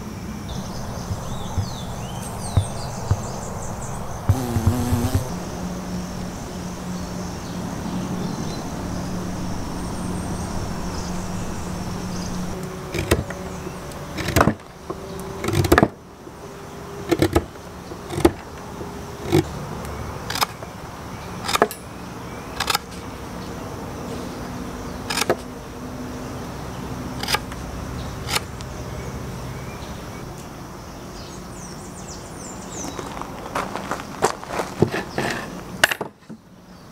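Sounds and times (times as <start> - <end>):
steady low hum: 0.4 - 14.8
knife cutting wood: 13.0 - 13.4, 15.4 - 15.9, 17.1 - 17.5, 18.1 - 18.4.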